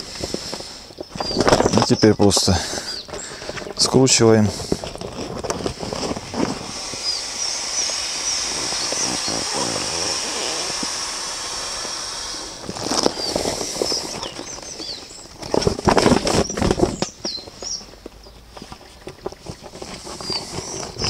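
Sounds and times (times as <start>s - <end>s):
bag crinkling and rustling: 0.0s - 11.2s, 12.6s - 17.8s
air rushing through hose: 5.7s - 14.4s.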